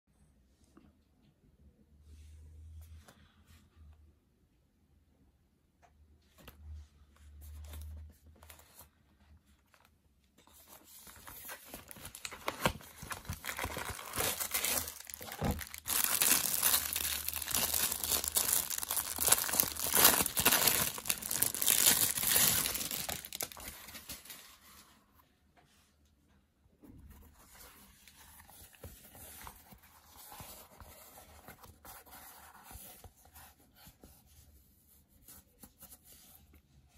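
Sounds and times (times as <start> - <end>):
plastic bag crinkling: 11.9 - 24.5.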